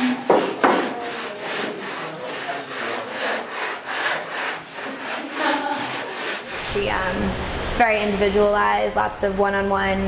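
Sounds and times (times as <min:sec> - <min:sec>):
hand sanding foam board: 0:00.0 - 0:07.2.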